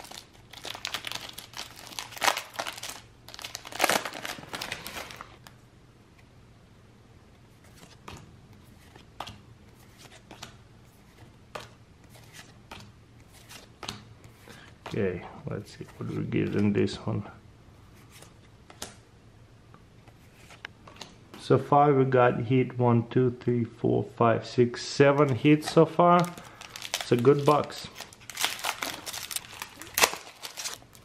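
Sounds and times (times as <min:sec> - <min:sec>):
foil wrapper crinkling and tearing: 0:00.0 - 0:05.4, 0:26.2 - 0:31.0.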